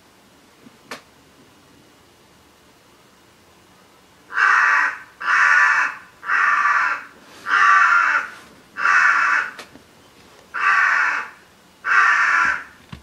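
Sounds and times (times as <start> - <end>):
crow cawing: 4.3 - 9.6, 10.5 - 12.8.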